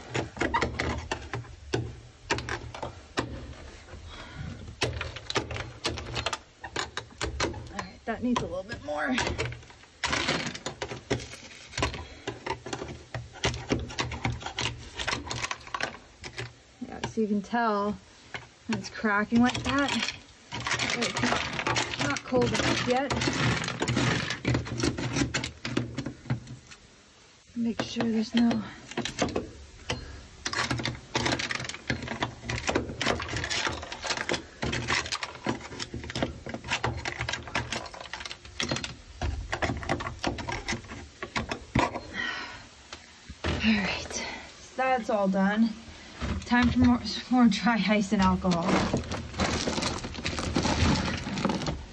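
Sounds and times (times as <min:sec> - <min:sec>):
scraper knocking and scraping: 0:18.4 - 0:26.6, 0:46.2 - 0:51.9
scraper cracking frozen mat off metal: 0:18.4 - 0:26.8, 0:27.8 - 0:42.0, 0:46.3 - 0:51.9.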